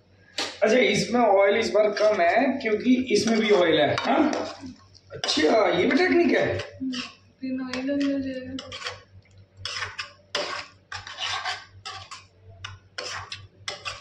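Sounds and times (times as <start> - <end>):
metal ladle scraping a pan: 3.1 - 14.0.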